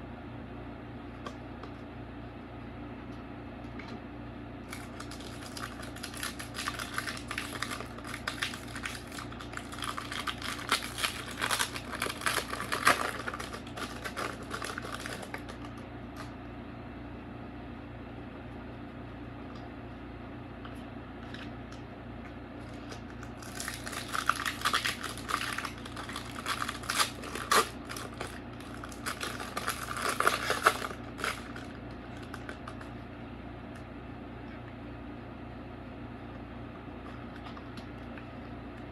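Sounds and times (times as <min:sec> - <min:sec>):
foil wrapper crinkling: 0:04.6 - 0:16.3, 0:22.6 - 0:32.9.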